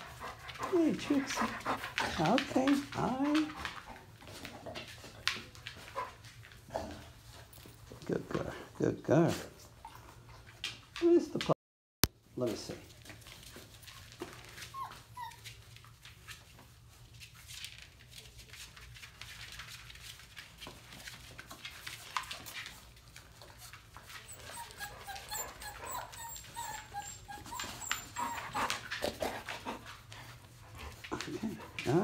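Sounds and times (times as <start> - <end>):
paws scuffling on tile floor: 0.0 - 11.6, 12.2 - 32.0
puppies whimpering and squeaking: 14.4 - 15.9, 23.8 - 29.1.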